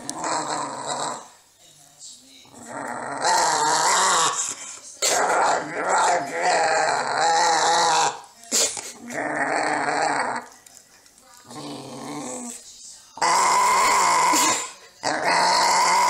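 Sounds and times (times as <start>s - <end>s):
small dog growling: 0.0s - 1.4s, 2.5s - 8.3s, 9.0s - 10.5s, 11.4s - 12.6s, 13.2s - 16.0s.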